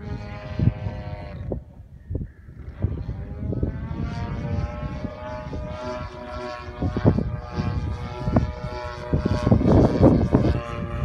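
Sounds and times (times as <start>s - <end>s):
model plane engine buzzing: 0.0s - 11.0s
wind buffeting microphone: 0.0s - 11.0s.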